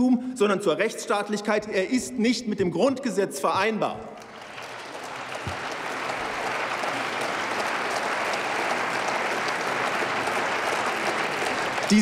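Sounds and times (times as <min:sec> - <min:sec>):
crowd clapping: 0:04.1 - 0:12.0.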